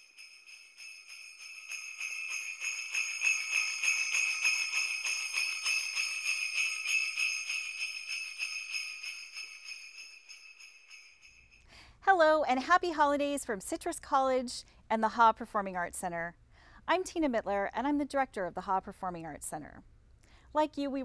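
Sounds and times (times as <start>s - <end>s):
jingle bells shaken: 0.0s - 11.6s.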